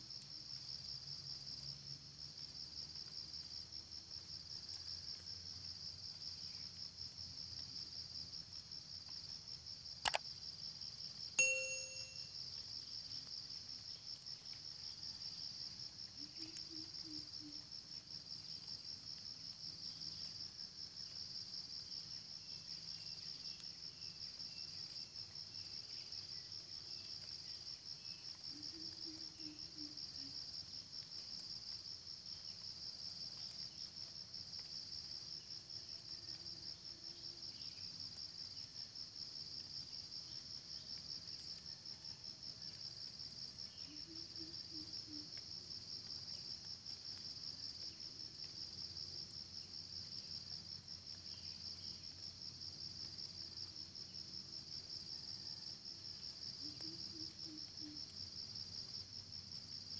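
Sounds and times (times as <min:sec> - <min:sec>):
high pulsing insect trill: 0:11.4 - 0:14.1.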